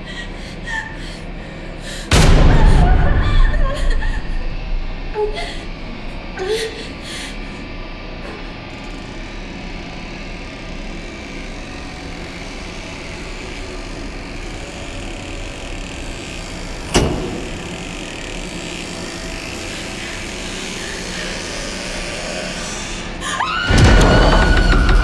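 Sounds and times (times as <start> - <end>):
dark rumbling drone: 0.0 - 25.0
sudden loud bang: 2.1 - 5.1, 23.7 - 25.0.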